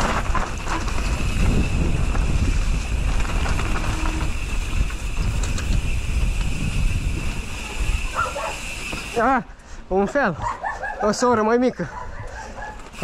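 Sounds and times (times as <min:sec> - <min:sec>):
wind buffeting microphone: 0:00.0 - 0:09.2.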